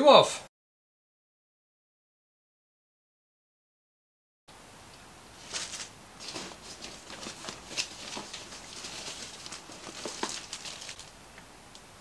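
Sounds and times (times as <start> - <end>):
plastic packaging rustling: 5.4 - 11.2.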